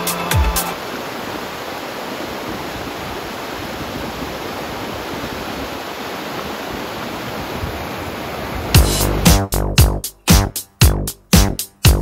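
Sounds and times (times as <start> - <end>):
fast-flowing river rushing: 0.0 - 9.2.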